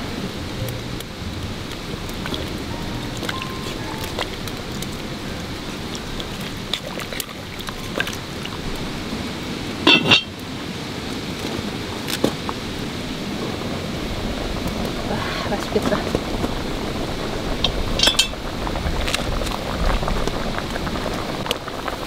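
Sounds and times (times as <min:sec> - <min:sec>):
steady hiss: 0:00.0 - 0:22.0
dishes and utensils clinking: 0:09.8 - 0:10.4, 0:17.7 - 0:18.4
loud ringing clinks: 0:18.0 - 0:18.4.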